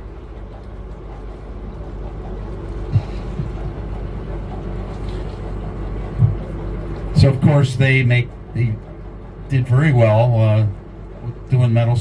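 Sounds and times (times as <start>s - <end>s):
boat engine humming: 0.0s - 12.0s.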